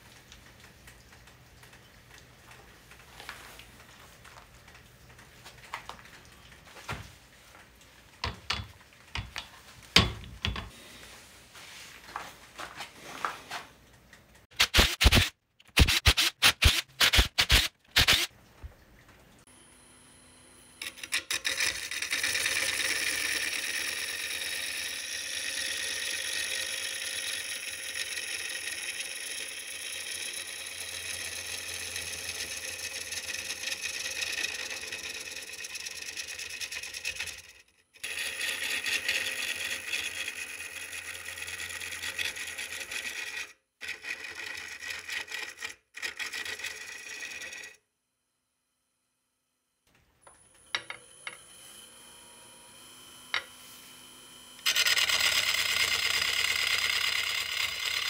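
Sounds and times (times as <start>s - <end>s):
wood scraping on a lathe: 20.8s - 47.8s, 50.7s - 58.0s.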